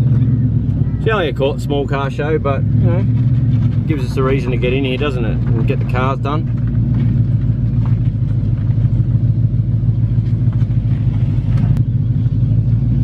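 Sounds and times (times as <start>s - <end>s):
car engine idling rumble: 0.0s - 13.0s.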